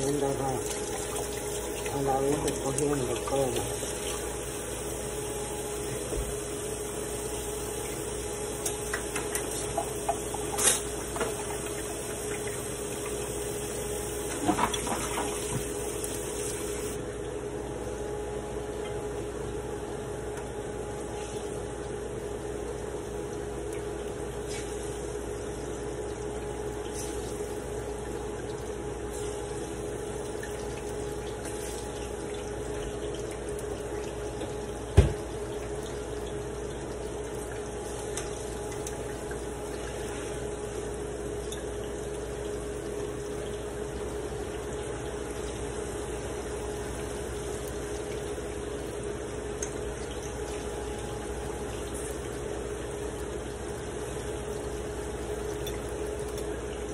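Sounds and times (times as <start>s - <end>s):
pot bubbling: 0.0s - 17.0s
steady hum: 0.0s - 56.9s.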